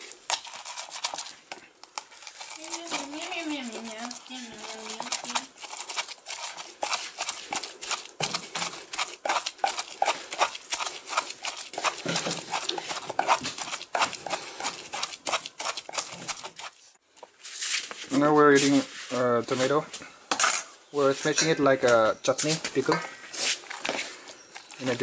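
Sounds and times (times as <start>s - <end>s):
wooden pestle pounding in mortar: 3.0s - 16.6s.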